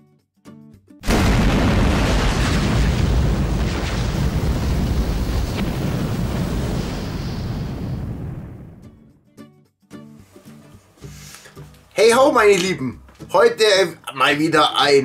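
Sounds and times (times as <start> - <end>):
fire explosion rumbling: 1.0 - 9.0.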